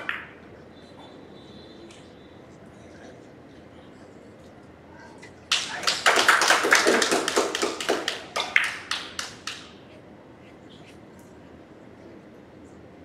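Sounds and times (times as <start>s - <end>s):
spectators clapping: 5.5s - 9.8s.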